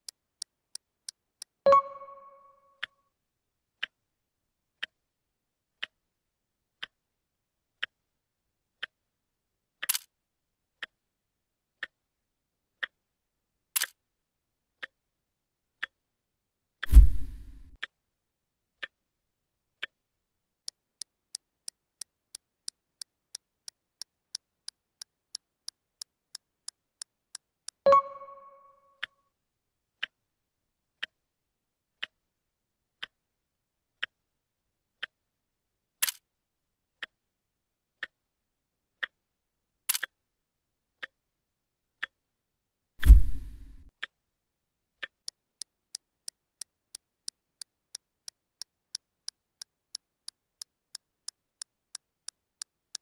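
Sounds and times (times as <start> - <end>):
clock ticking: 0.8 - 2.9, 20.7 - 29.1, 45.0 - 53.0
two-tone ding: 1.7 - 2.7, 27.9 - 28.9
deep thump: 16.9 - 17.7, 43.0 - 43.8.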